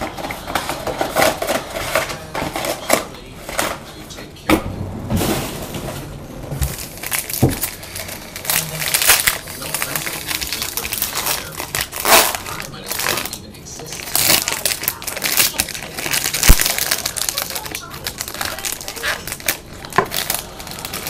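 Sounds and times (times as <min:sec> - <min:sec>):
packaging rustling and crinkling: 0:05.2 - 0:21.0.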